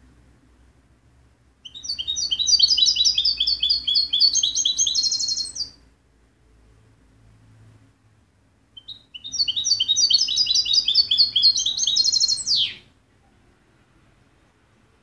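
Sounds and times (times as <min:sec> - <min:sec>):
goldfinch singing: 0:01.6 - 0:05.8, 0:08.8 - 0:12.9.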